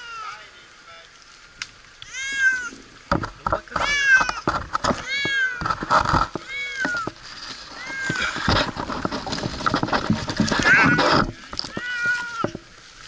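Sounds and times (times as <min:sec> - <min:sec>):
cat meowing: 0:02.0 - 0:02.8, 0:03.8 - 0:04.4, 0:05.0 - 0:05.6, 0:06.4 - 0:07.1, 0:07.8 - 0:08.4, 0:11.7 - 0:12.5
rustling and knocking: 0:02.4 - 0:12.8.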